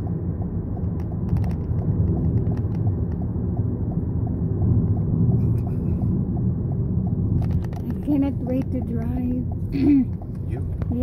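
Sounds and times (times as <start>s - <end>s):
sharp clicks: 0.0s - 5.2s
road and engine rumble: 0.0s - 11.0s
turn signal ticking: 0.0s - 11.0s.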